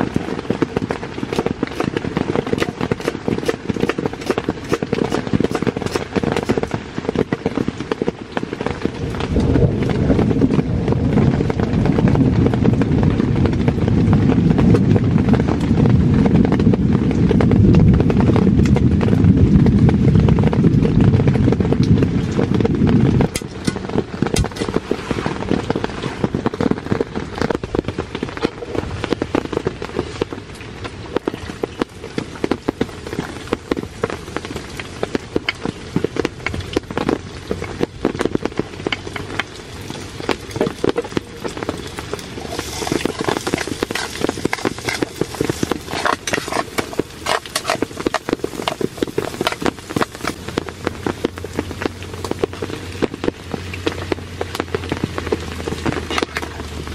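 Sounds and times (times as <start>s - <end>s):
rain on a tent: 0.0s - 56.9s
loud low rumble: 9.0s - 24.3s.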